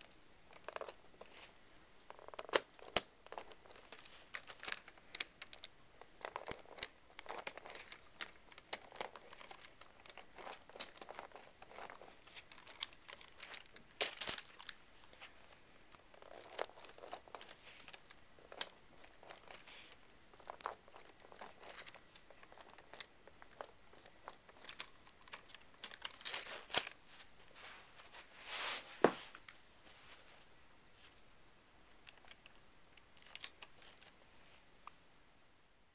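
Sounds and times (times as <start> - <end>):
plastic parts rustling and clicking: 0.0 - 27.1, 31.9 - 34.2.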